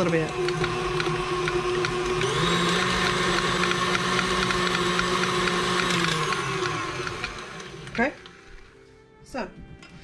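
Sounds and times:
stand mixer whisking: 0.0s - 8.7s.

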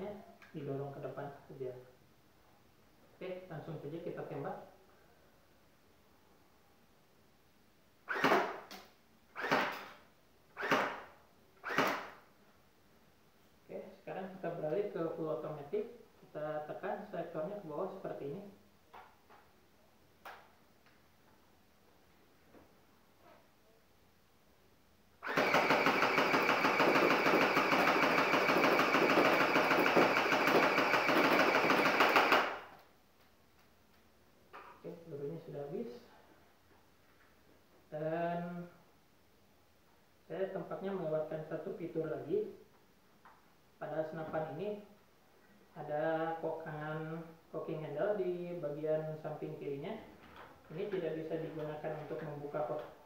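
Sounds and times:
airsoft rifle shots: 8.1s - 8.8s, 9.4s - 10.0s, 10.6s - 12.2s, 25.2s - 32.7s.

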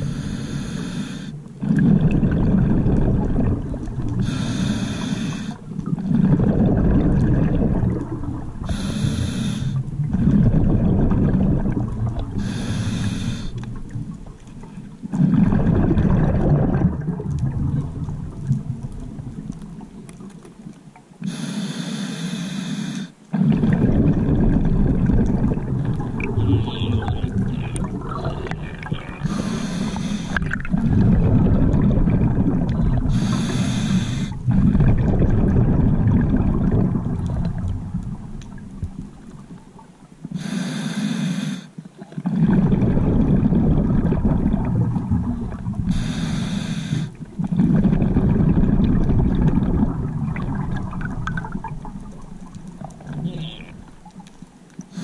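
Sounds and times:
regulator inhale hiss: 0.0s - 1.4s, 4.2s - 5.6s, 8.6s - 9.8s, 12.4s - 13.7s, 21.2s - 23.2s, 29.2s - 30.4s, 33.1s - 34.4s, 40.3s - 41.8s, 45.9s - 47.2s
exhaled bubbles rumbling: 0.0s - 21.2s, 23.3s - 40.3s, 42.0s - 55.0s.

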